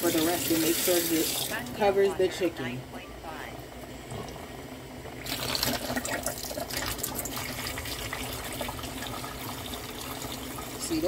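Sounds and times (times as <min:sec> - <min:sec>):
water running into a bowl: 0:00.0 - 0:01.8, 0:05.2 - 0:11.0.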